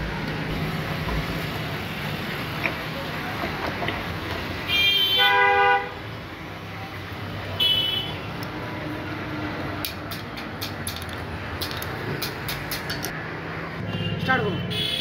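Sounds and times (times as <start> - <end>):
vehicle horn honking: 4.7 - 5.9, 13.9 - 15.0.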